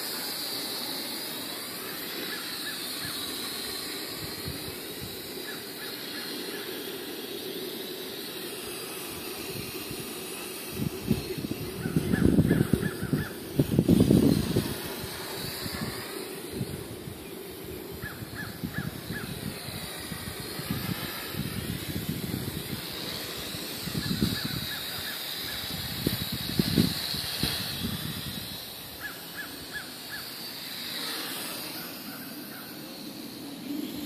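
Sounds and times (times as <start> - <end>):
drone propellers whining: 0.0 - 34.0
wind buffeting microphone: 8.7 - 29.8.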